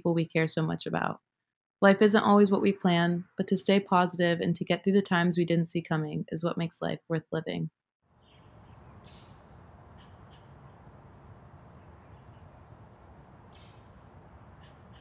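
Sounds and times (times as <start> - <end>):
bird chirps and calls: 8.2 - 15.0
low background hiss: 8.3 - 15.0.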